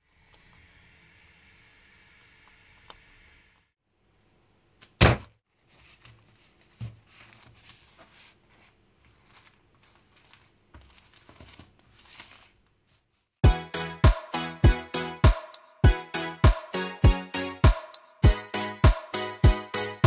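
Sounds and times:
thump on table: 5.0 - 5.3
parchment paper crinkling: 5.6 - 13.2.

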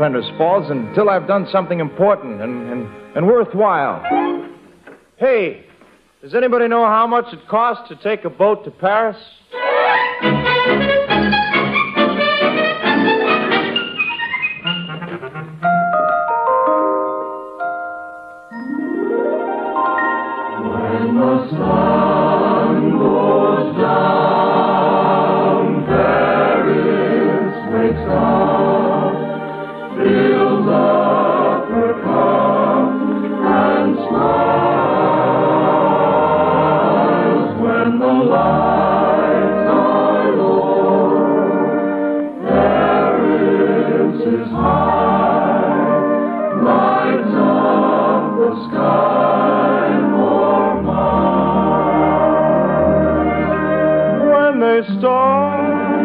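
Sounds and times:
orchestral accompaniment: 0.0 - 4.8, 9.5 - 56.0
choir singing: 18.6 - 56.0.

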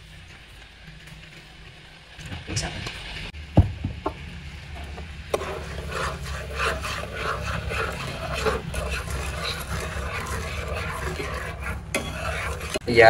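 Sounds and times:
metal spoon scraping a frying pan: 5.3 - 12.8.

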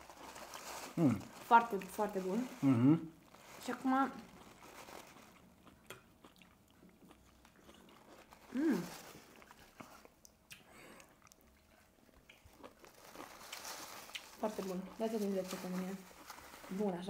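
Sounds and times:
chewing and crunching: 0.0 - 17.0
person humming: 2.6 - 3.1, 8.5 - 8.9.

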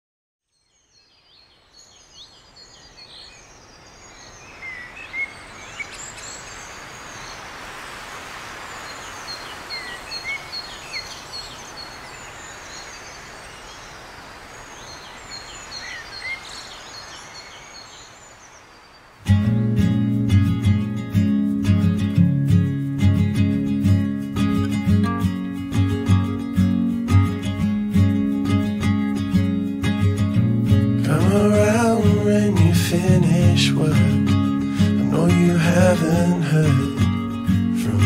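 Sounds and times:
small birds chirping and trilling: 0.4 - 19.3, 31.1 - 38.0
steady outdoor hiss: 0.5 - 38.0.

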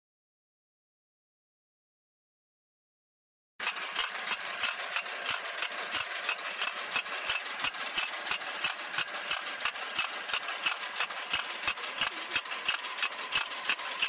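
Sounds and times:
regular mechanical clatter: 3.6 - 14.0
small engine drone: 3.6 - 14.0.

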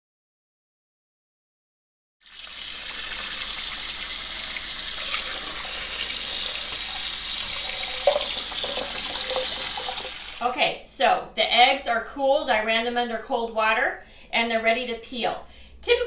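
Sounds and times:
tap water running into saucepan: 2.2 - 10.6.

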